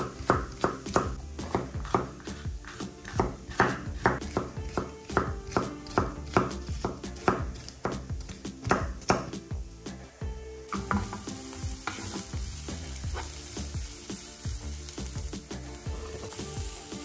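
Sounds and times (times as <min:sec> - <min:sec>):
knife chopping on cutting board: 0:00.0 - 0:09.4
background music: 0:00.0 - 0:17.0.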